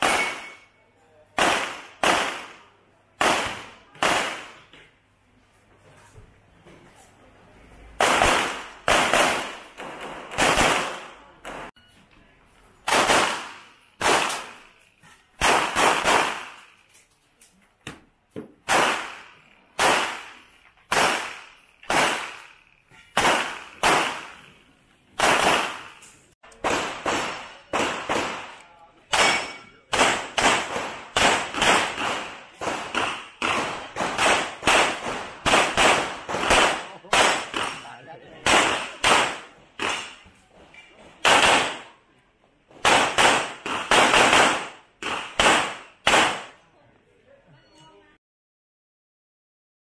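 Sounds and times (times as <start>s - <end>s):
handgun shots: 0.0s - 0.6s, 25.2s - 37.8s, 38.4s - 40.2s.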